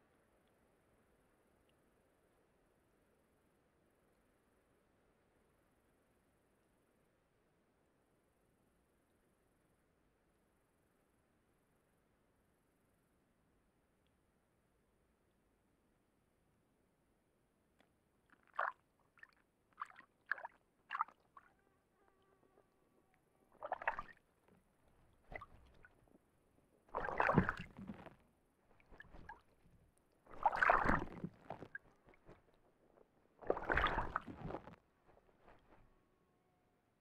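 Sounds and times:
bird splashing in water: 23.6 - 24.2, 26.9 - 28.1, 28.8 - 29.5, 30.3 - 32.5, 33.4 - 34.6.

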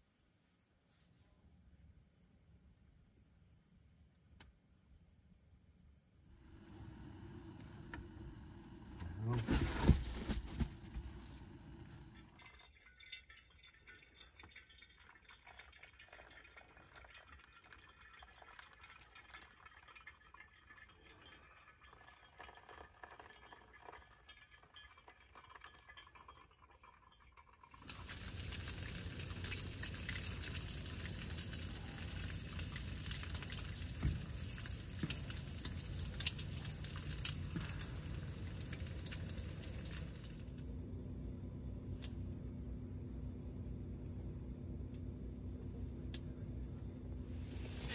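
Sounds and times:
faint stove hiss: 6.4 - 12.9, 27.7 - 40.7, 46.0 - 47.9
water pouring: 11.0 - 40.6, 47.4 - 47.9
food sizzling in a pan: 47.4 - 47.9.

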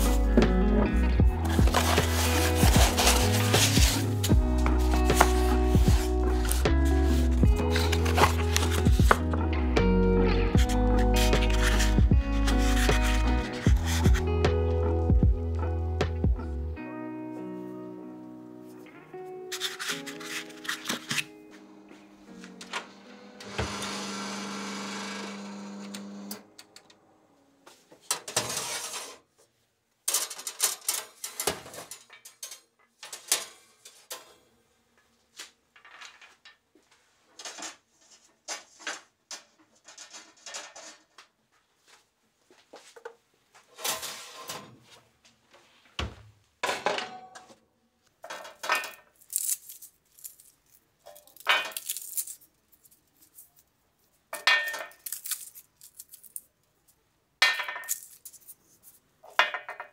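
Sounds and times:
hands rubbing nuts on tray: 1.5 - 9.2, 11.0 - 14.1, 49.2 - 56.4, 57.8 - 59.1
tray and oven rack clatter: 30.1 - 34.4, 38.9 - 41.2
nuts rattling on metal tray: 48.2 - 53.5, 54.4 - 56.5, 57.4 - 58.5.

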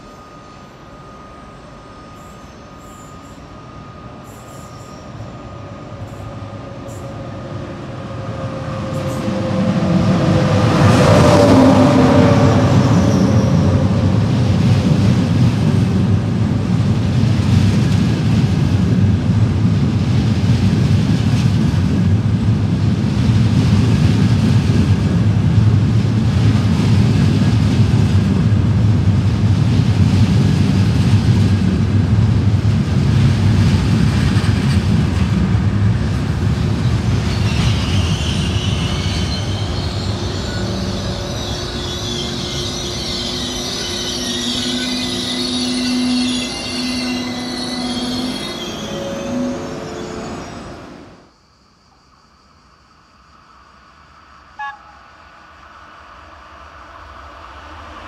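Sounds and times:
train wheels rumbling on rails: 0.0 - 51.2
metallic wheel squeal: 0.1 - 6.3, 8.2 - 14.2, 37.2 - 51.0.

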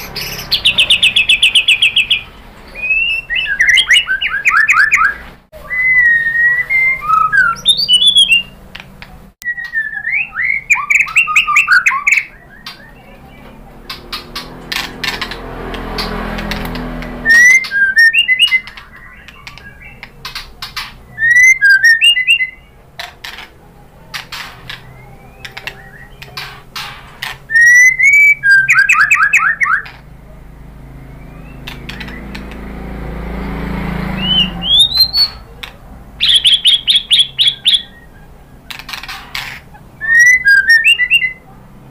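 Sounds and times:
sharp bird clicks: 0.0 - 5.2, 10.7 - 22.4, 23.0 - 30.1, 31.2 - 32.9, 34.2 - 41.3
bird singing whistled phrases: 0.0 - 8.6, 9.4 - 13.4, 17.2 - 20.1, 21.1 - 22.7, 24.7 - 26.4, 27.5 - 29.9, 31.0 - 32.4, 34.2 - 35.5, 36.2 - 38.3, 40.0 - 41.4.

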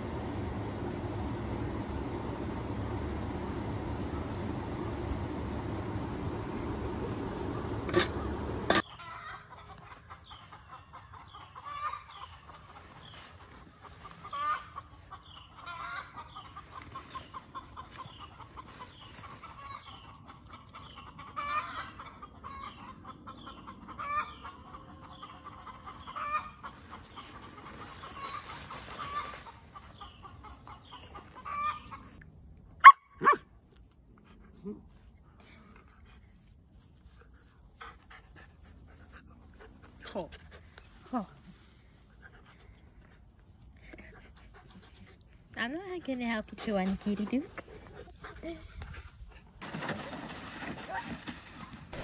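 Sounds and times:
chickens clucking: 0.0 - 32.4.

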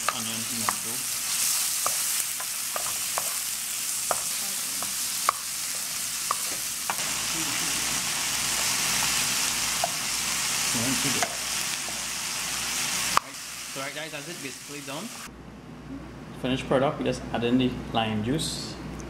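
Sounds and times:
vegetables and fish sizzling: 0.0 - 15.3.

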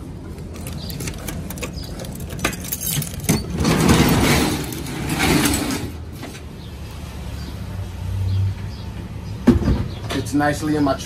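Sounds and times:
cargo door rattling rush: 0.4 - 5.8.

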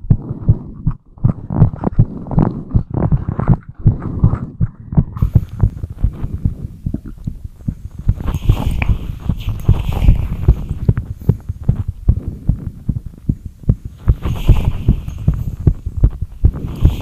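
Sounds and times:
heartbeat thuds: 0.0 - 17.0
soft hiss: 5.2 - 17.0.

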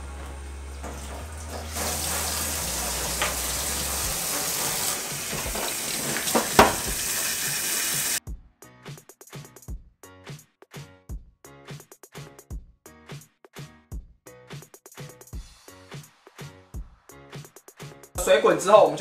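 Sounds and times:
tap water splashing in sink: 0.2 - 8.2
sharp knocks: 6.3 - 7.1
background music with a beat: 8.2 - 19.0.

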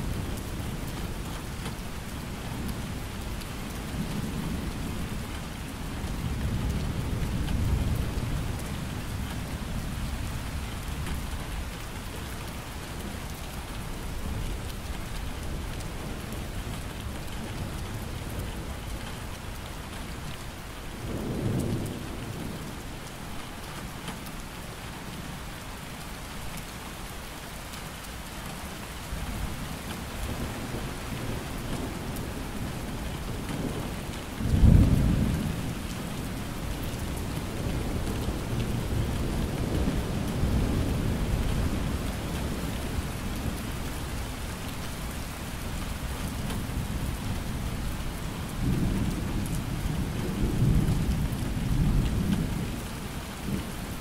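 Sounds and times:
steady rain falling: 0.0 - 54.0
thunder rumbling: 32.8 - 43.6.

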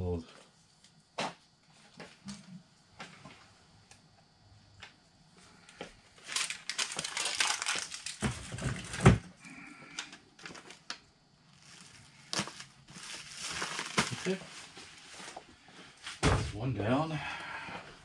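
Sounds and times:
packing materials rustling: 6.2 - 9.1, 10.4 - 16.2
loud thump: 16.2 - 16.6.

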